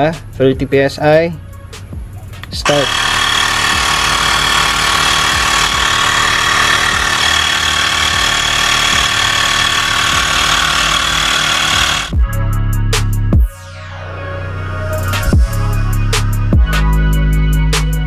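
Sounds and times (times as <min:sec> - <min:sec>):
music with a beat: 0:01.3 - 0:02.7, 0:12.1 - 0:13.8, 0:14.9 - 0:18.0
air compressor whining: 0:02.6 - 0:12.2.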